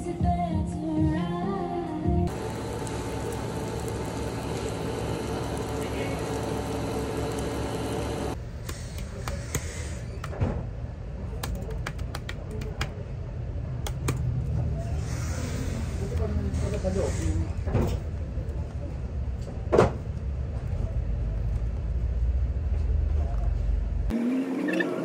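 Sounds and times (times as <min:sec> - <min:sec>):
fast typing on a keyboard: 0:11.4 - 0:13.0.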